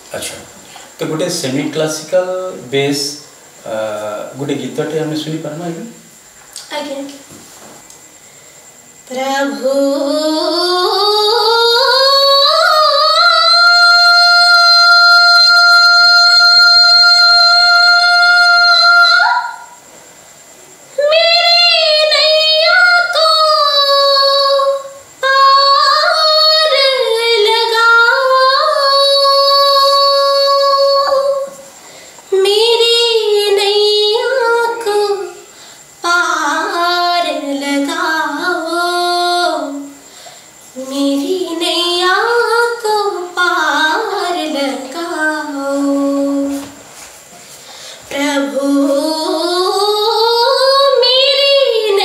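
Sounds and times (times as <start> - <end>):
woman singing: 9.0 - 19.8, 21.0 - 31.7, 32.3 - 40.1, 40.7 - 46.8, 48.0 - 52.0.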